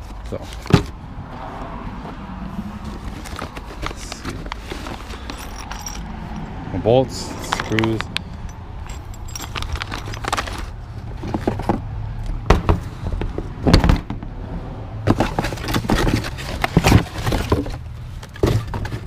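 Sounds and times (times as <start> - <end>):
cardboard box rustling and knocking: 2.8 - 5.6, 9.8 - 11.9, 15.0 - 19.0.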